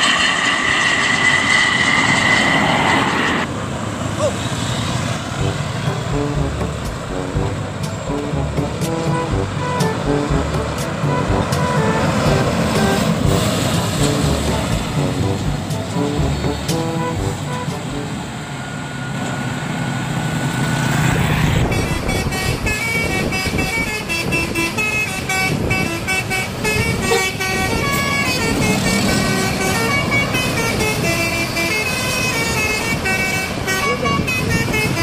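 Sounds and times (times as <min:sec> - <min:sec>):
multi-tone bus horn melody: 0:05.3 - 0:19.0, 0:21.3 - 0:35.0
low engine rumble: 0:05.4 - 0:18.4
slowly rising tone: 0:05.4 - 0:19.2.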